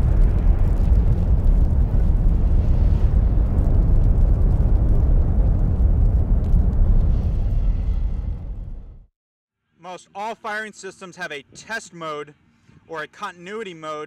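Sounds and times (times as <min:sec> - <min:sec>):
low rumble: 0:00.0 - 0:09.1.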